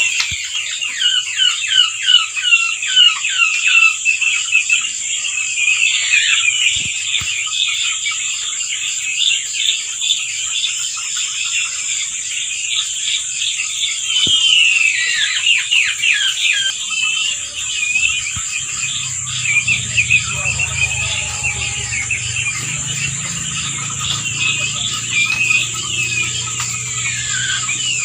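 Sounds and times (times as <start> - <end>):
quail chirping and peeping: 0.0 - 28.0
high-pitched insect drone: 17.2 - 28.0.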